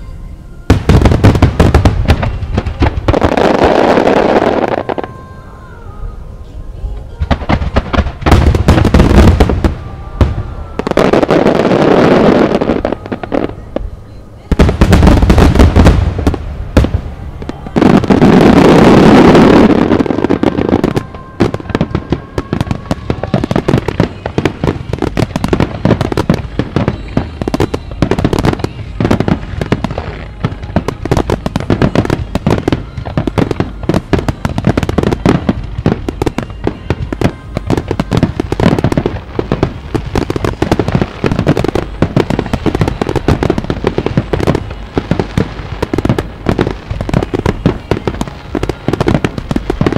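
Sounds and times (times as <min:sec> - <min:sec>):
fireworks crackling: 0:00.0 - 0:06.0, 0:06.7 - 0:49.9
fireworks blast: 0:00.0 - 0:06.1, 0:06.9 - 0:49.9.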